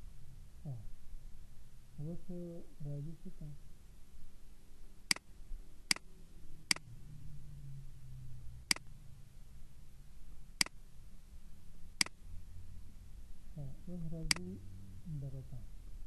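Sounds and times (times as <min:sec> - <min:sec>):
mouse button clicking: 0:14.3 - 0:14.5.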